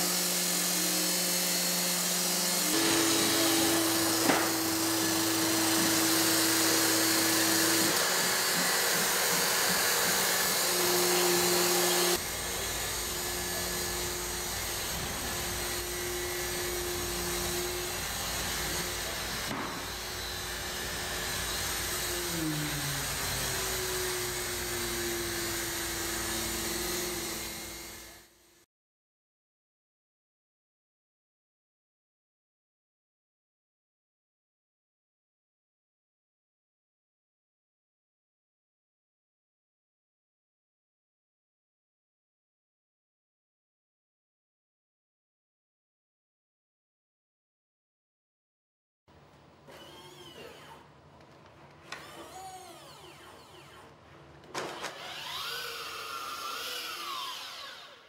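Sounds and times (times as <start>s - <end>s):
robot motors whining: 49.7s - 50.9s, 51.8s - 58.0s.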